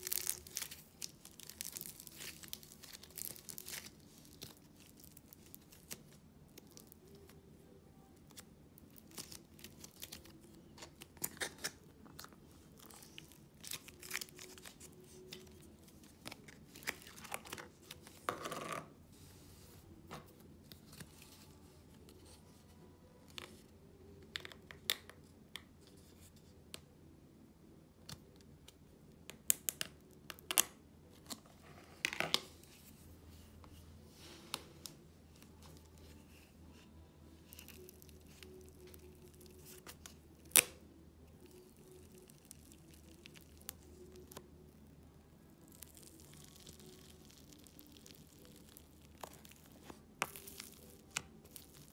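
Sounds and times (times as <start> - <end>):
clay crackling and tearing: 0.0 - 7.4, 8.1 - 18.3, 37.4 - 40.8, 41.4 - 44.4, 45.6 - 51.9.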